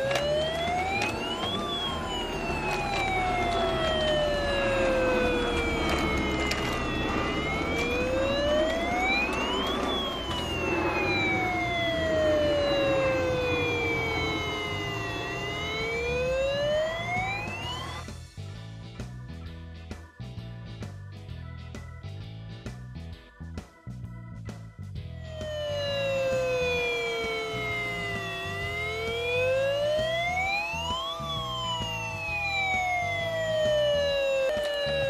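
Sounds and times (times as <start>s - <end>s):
toy fire engine siren wail: 0.0s - 18.2s, 25.2s - 35.0s.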